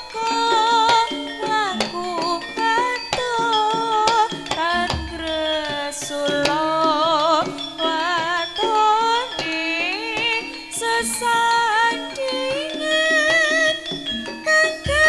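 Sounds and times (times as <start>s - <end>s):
drum strokes: 0.0s - 15.0s
person singing with vibrato: 0.0s - 15.0s
deep low drum stroke: 4.9s - 5.8s.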